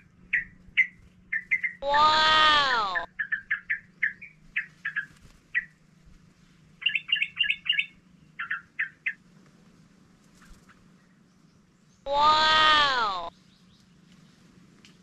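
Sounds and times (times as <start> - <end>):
bird chattering calls: 0.0 - 5.8, 6.8 - 9.2.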